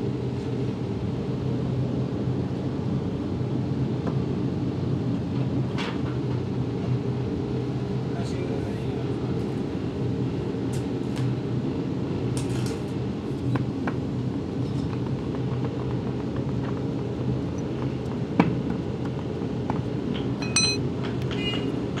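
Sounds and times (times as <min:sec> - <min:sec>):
low machinery hum: 0:06.8 - 0:22.0.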